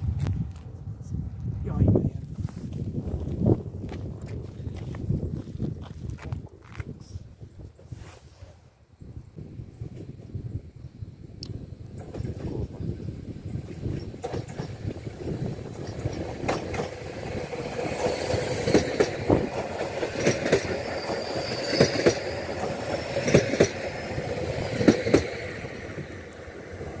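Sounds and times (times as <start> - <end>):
train running hum: 0.0 - 27.0
train wheels clacking over rail joints: 13.9 - 25.6.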